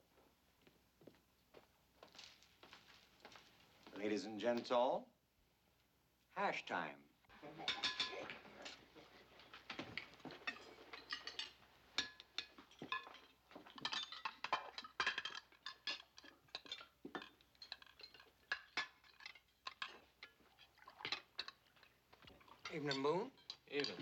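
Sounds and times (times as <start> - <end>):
cutlery and dishes clinking: 7.4 - 24.0.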